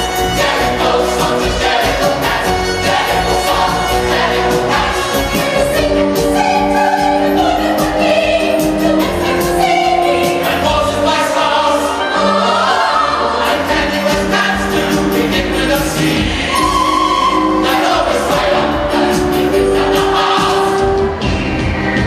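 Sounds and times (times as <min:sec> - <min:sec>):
choir singing with orchestra: 0:00.0 - 0:22.0.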